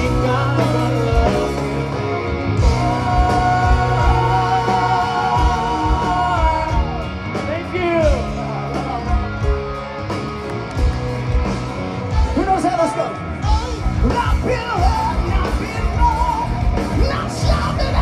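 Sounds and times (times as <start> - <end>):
person singing: 0.0 - 7.1, 13.5 - 18.0
bass guitar: 0.0 - 18.0
drums: 0.0 - 18.0
electric guitar: 0.0 - 18.0.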